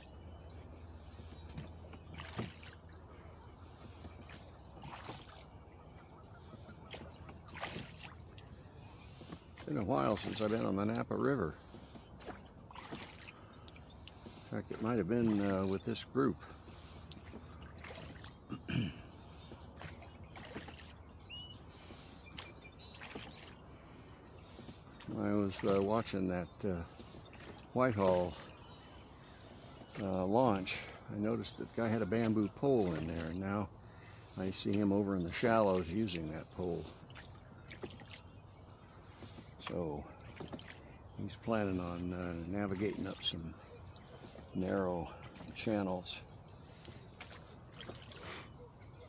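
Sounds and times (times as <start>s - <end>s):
faint bird chirps: 0.0s - 49.0s
oar strokes splashing: 0.0s - 49.0s
oars knocking in oarlocks: 1.4s - 2.8s, 3.8s - 5.5s, 6.4s - 8.4s, 9.1s - 15.8s, 16.6s - 20.9s, 22.3s - 23.6s, 36.9s - 38.2s, 39.0s - 40.9s, 46.7s - 48.3s.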